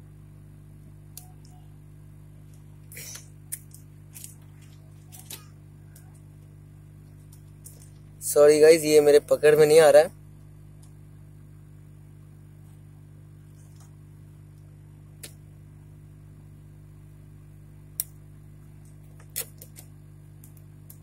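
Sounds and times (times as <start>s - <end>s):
steady low hum: 0.0s - 21.0s
small tools clicking on circuit board: 2.5s - 6.5s, 18.8s - 21.0s.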